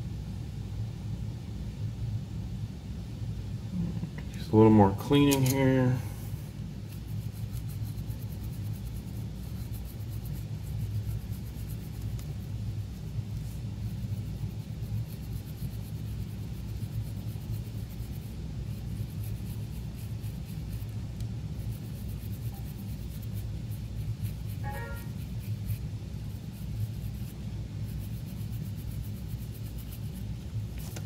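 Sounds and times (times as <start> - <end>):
steady low rumble: 0.0 - 31.0
brush scrubbing circuit board: 6.8 - 31.0.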